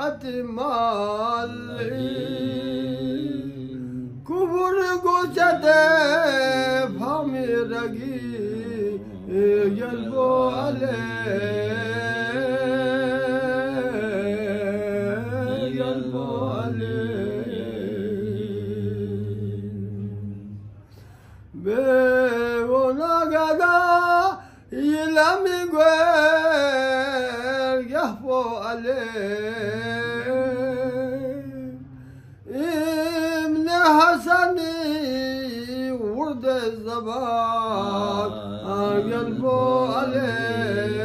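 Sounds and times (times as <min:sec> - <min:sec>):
old man singing unaccompanied: 0:00.0 - 0:20.3, 0:21.6 - 0:31.9, 0:32.5 - 0:41.0
man chanting: 0:00.0 - 0:20.8, 0:21.5 - 0:41.0.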